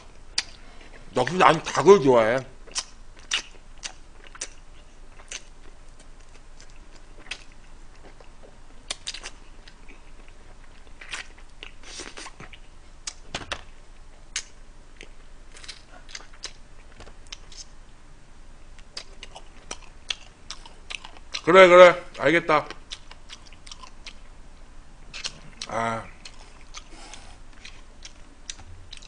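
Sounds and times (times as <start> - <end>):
chewing and biting food: 2.6 - 13.3, 14.3 - 17.7, 18.8 - 21.5, 22.6 - 24.3, 25.1 - 29.0.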